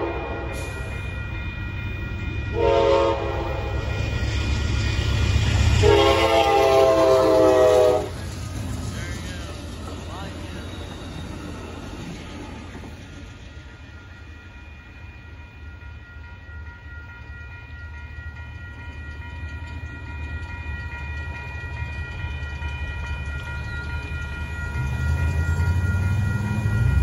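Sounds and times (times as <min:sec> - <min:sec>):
road vehicles rumbling over tracks: 0:00.0 - 0:14.4, 0:18.6 - 0:27.0
train cars rumbling over crossing: 0:00.0 - 0:16.4, 0:18.4 - 0:27.0
crossing warning bell ringing: 0:00.0 - 0:27.0.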